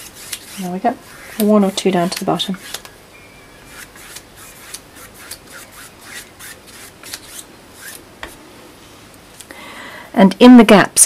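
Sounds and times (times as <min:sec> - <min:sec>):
paintbrush strokes on canvas: 0:00.0 - 0:02.8.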